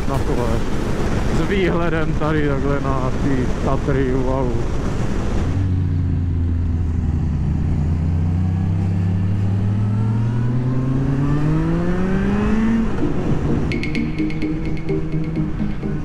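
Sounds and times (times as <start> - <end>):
motorcycle engine accelerating: 5.6 - 16.0.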